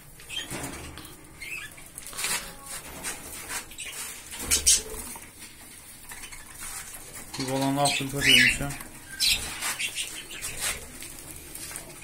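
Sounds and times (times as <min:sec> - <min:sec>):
cockatiel chicks begging calls: 0:07.8 - 0:10.7.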